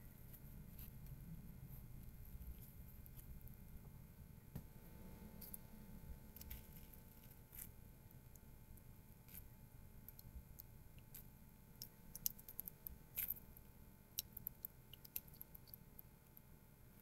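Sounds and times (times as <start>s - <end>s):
faint small clicks and ticks: 6.4s - 16.5s.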